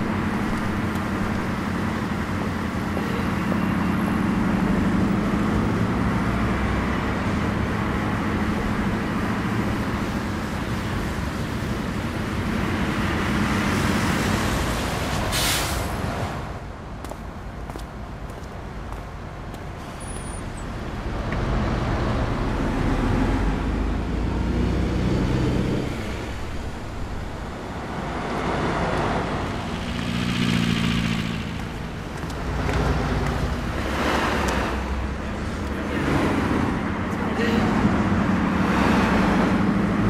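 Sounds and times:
motor vehicles driving past: 0:19.7 - 0:40.0.

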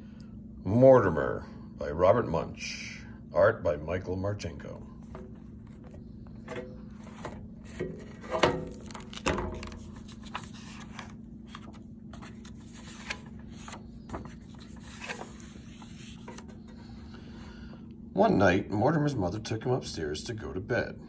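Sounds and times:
steady low hum: 0:00.0 - 0:21.0
book handling bumps: 0:05.0 - 0:16.9
book pages turning: 0:05.0 - 0:17.0.

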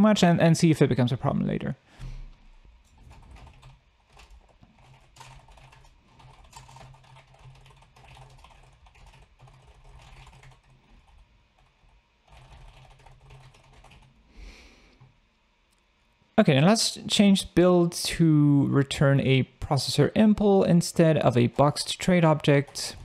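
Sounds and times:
keyboard typing: 0:02.9 - 0:14.1.

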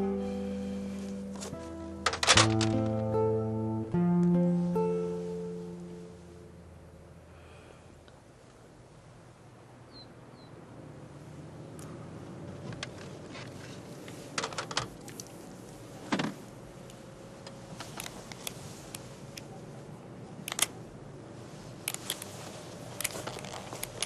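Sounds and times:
faint steady hum: 0:00.0 - 0:24.0
pistol metallic clicks: 0:20.4 - 0:20.7.

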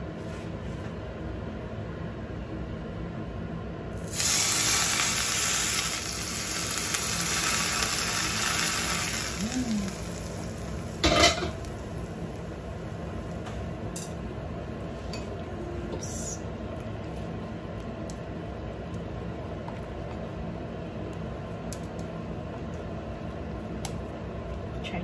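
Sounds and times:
hot oil sizzling: 0:04.0 - 0:13.5
wok clanking on hob: 0:11.0 - 0:11.6.

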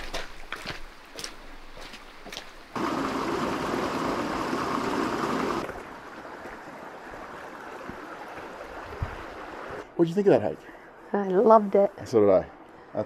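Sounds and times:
footsteps on wet gravel: 0:00.0 - 0:02.9
creek water running over stones: 0:00.0 - 0:09.8.

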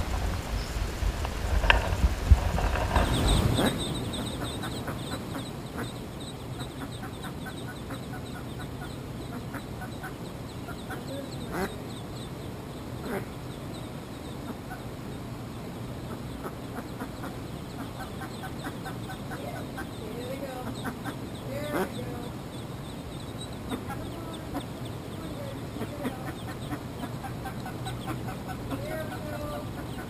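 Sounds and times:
ducklings peeping: 0:00.0 - 0:30.0
duck quacks: 0:03.4 - 0:12.3, 0:13.0 - 0:13.4, 0:16.1 - 0:22.3, 0:23.6 - 0:30.0.

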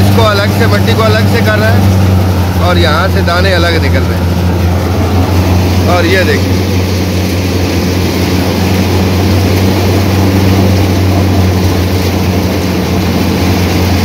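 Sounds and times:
engine hum: 0:00.0 - 0:14.0
thresher rushing clatter: 0:00.0 - 0:14.0.

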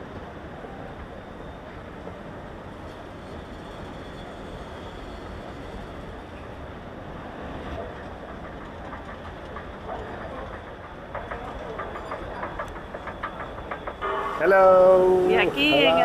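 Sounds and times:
escalator steps clicking: 0:07.9 - 0:14.0.

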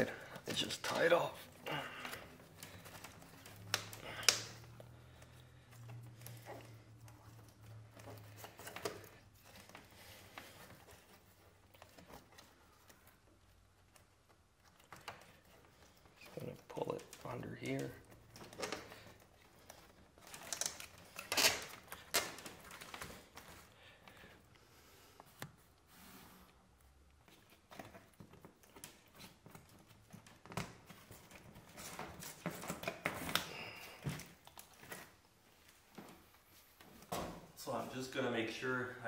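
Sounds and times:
bark rustling and crinkling: 0:00.0 - 0:24.3.

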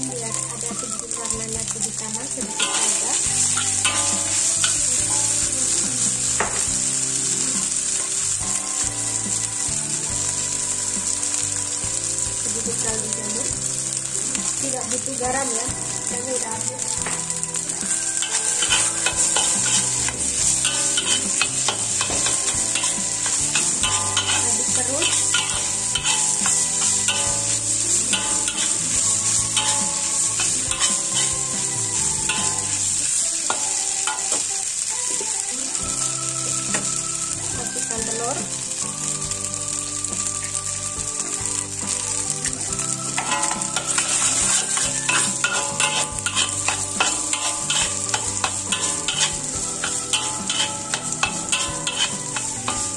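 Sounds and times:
rice sizzling in a wok: 0:00.0 - 0:52.9
metal spatula scraping a pan: 0:02.4 - 0:08.8, 0:17.0 - 0:34.5, 0:43.0 - 0:52.9.

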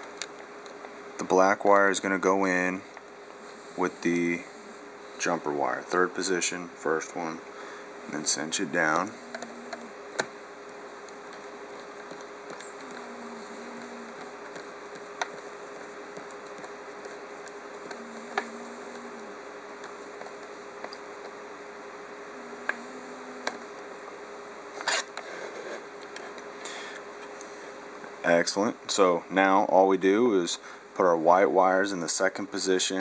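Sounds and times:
steady low hum: 0:00.0 - 0:33.0
small clicks and scratches: 0:09.0 - 0:10.3, 0:11.0 - 0:21.4.

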